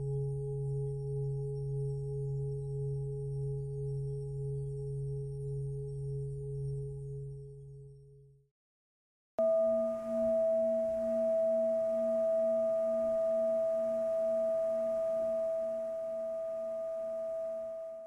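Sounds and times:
singing bowl ringing: 9.4 - 18.0.

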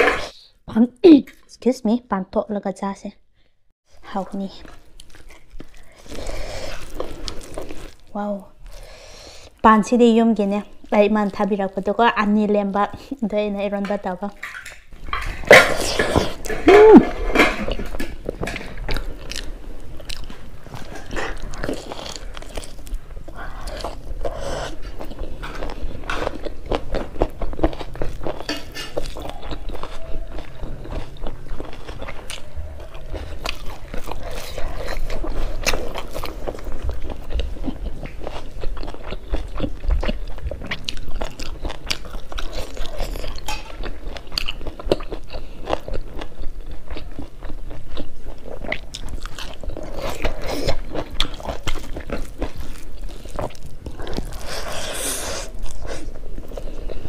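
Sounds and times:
person chewing and lip smacking: 15.5 - 57.0.

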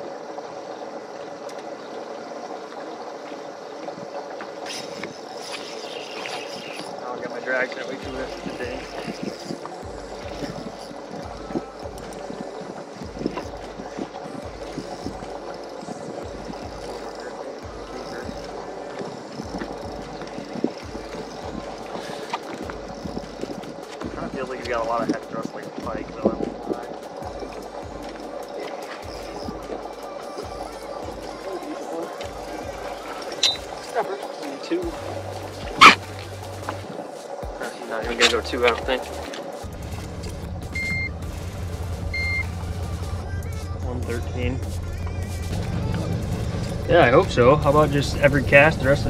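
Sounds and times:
water lapping against boat hull: 0.0 - 40.0
wind buffeting microphone: 6.2 - 28.6.

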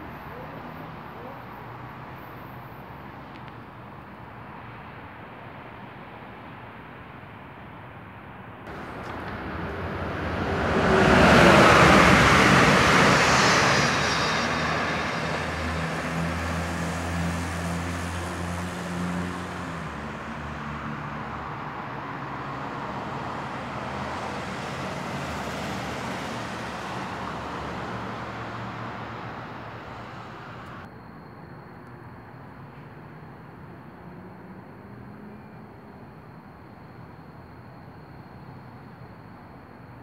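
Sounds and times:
train passing at speed: 8.7 - 30.9.

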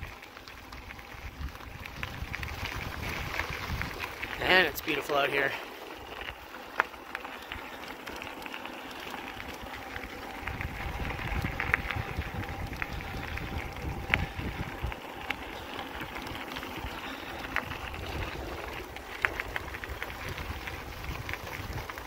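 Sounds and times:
bike tyres rolling on gravel: 0.0 - 22.0
wind rumble on microphone: 0.7 - 4.8, 9.3 - 22.0.

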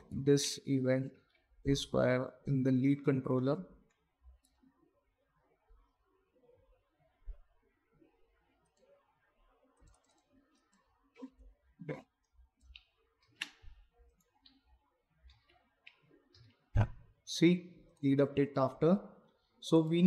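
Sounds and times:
computer mouse clicks: 9.8 - 11.3, 12.2 - 16.6.

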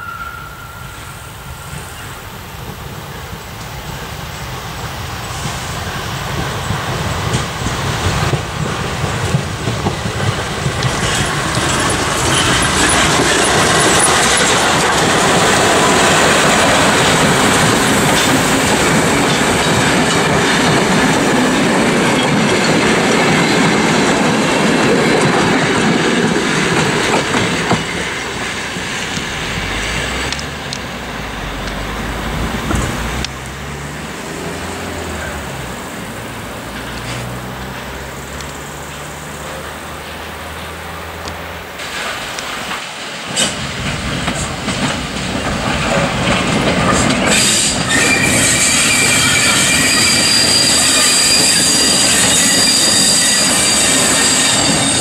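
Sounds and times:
steam train passing: 0.0 - 55.0
wheels rattling over rails: 1.7 - 55.0.

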